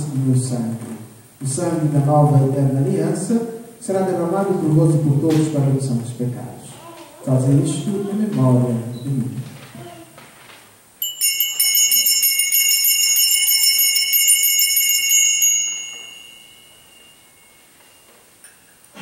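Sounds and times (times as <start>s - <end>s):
small hand bells ringing: 11.0s - 18.4s.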